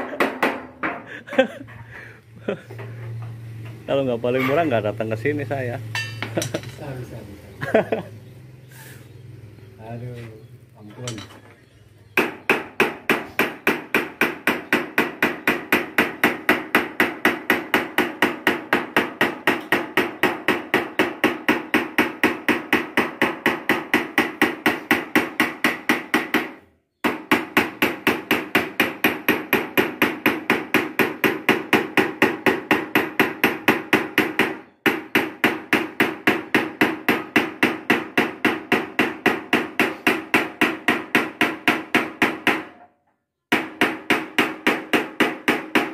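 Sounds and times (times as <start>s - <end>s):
hammer ringing on sheet metal: 12.2s - 42.8s.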